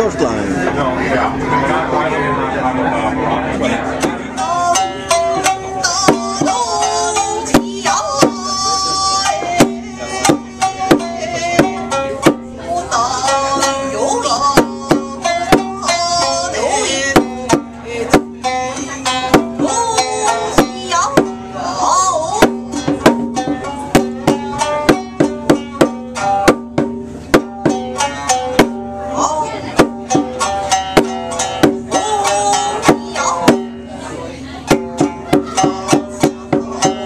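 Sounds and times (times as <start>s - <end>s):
shamisen plucked: 2.4s - 37.0s
small drum strikes: 4.0s - 33.9s, 34.6s - 37.0s
woman singing: 4.2s - 26.2s, 29.0s - 34.0s, 34.7s - 37.0s.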